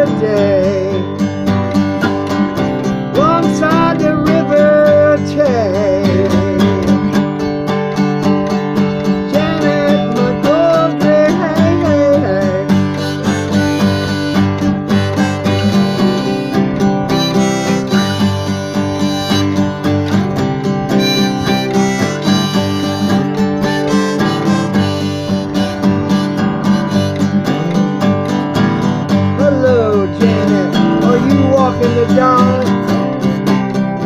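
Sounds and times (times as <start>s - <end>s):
strummed acoustic guitar: 0.0s - 34.0s
harmonica playing: 12.1s - 29.0s.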